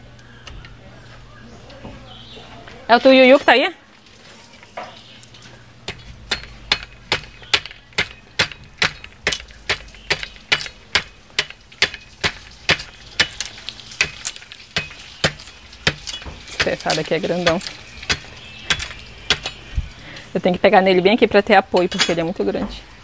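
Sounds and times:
machete chopping wood: 6.3 - 19.6.

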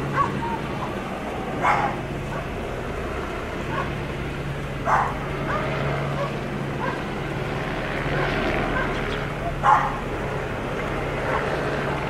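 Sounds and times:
idling vehicles hum: 0.0 - 12.0
dog barking: 0.1 - 1.0, 1.6 - 2.5, 3.7 - 4.0, 4.8 - 7.0, 8.1 - 9.0, 9.6 - 10.0, 11.2 - 11.5
dog yipping: 0.1 - 1.0, 1.6 - 2.4, 4.9 - 7.0, 8.1 - 9.0, 9.6 - 10.0.

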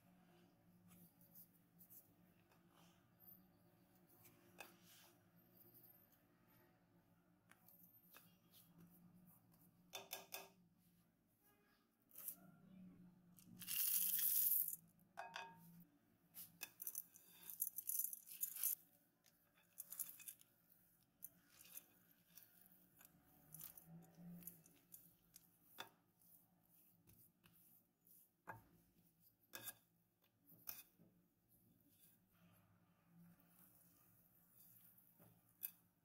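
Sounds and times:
chocolate chips rattling into bowl: 13.6 - 14.8, 16.8 - 18.8.

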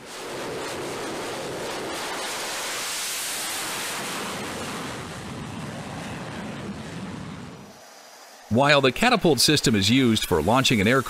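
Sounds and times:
jet engine hissing rush: 0.1 - 11.0.

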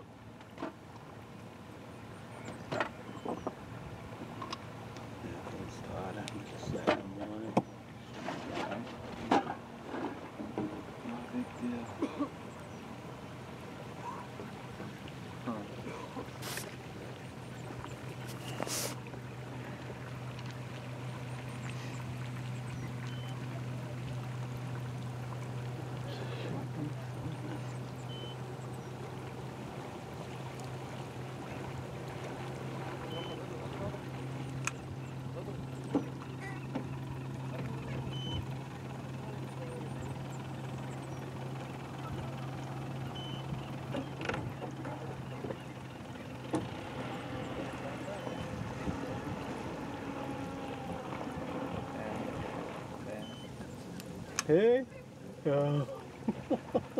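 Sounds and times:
outboard motor droning: 0.0 - 56.9
brief hiss: 18.3 - 19.0.

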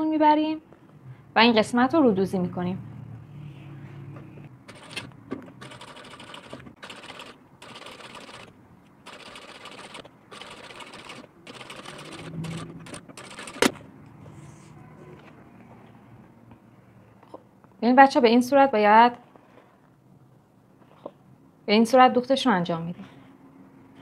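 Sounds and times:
sewing machine running: 4.7 - 5.0, 5.6 - 13.8.

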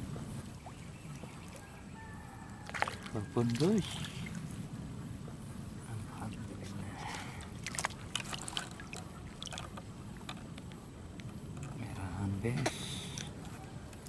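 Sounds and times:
fish splashing: 2.5 - 4.4, 7.0 - 10.3.

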